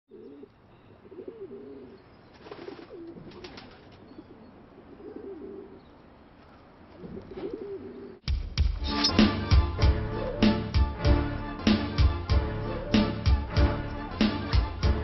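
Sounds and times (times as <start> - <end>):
pigeons cooing: 0.1 - 6.1, 6.9 - 8.2, 10.2 - 10.6.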